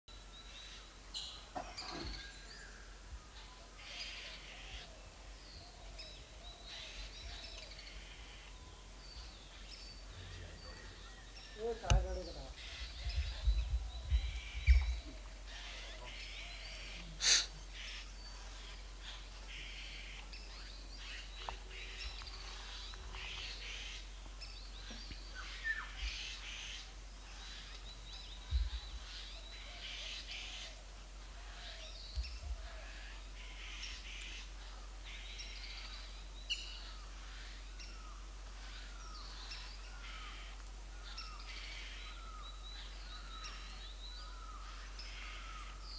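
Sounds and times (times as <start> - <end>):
birds chirping and whistling: 0.4 - 30.8, 35.2 - 40.4
soft low thumps: 12.9 - 15.1, 28.4 - 29.0.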